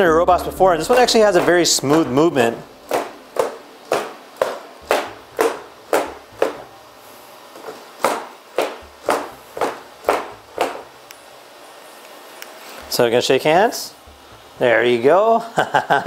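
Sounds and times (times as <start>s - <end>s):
robot feet stomping on floor: 0.8s - 6.8s, 7.6s - 11.0s.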